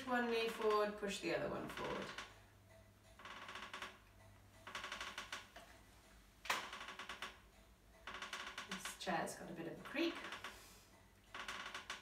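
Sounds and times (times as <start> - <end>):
chair creaking: 1.6 - 2.4, 3.2 - 4.0, 4.6 - 5.7, 6.4 - 12.0.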